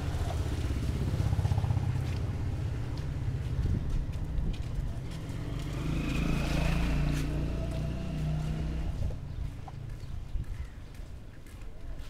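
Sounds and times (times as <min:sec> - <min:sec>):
vehicle engine passing: 0:05.0 - 0:09.2.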